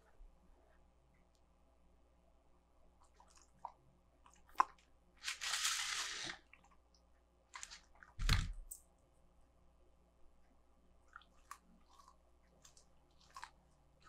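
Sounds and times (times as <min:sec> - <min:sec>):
crackly crunchy noise: 0:11.0 - 0:14.0.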